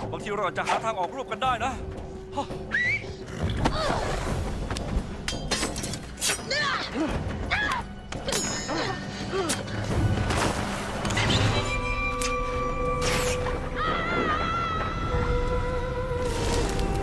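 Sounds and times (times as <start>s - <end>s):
dramatic film music: 0.0s - 17.0s
wavering sung vocal: 14.6s - 17.0s.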